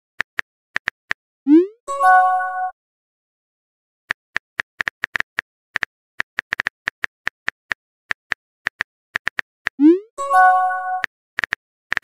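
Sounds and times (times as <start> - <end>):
keyboard typing clicks: 10.9 - 12.0.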